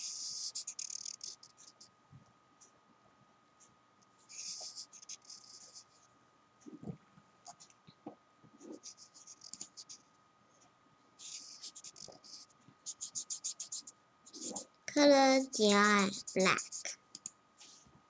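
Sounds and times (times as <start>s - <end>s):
marker squeaking on paper: 0.0s - 1.8s, 4.3s - 6.1s, 8.6s - 10.1s, 11.2s - 14.7s.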